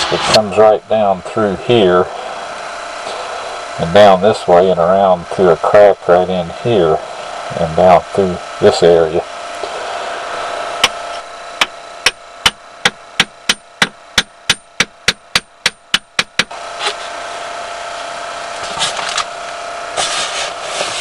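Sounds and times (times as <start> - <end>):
steady hum: 0.0 - 21.0.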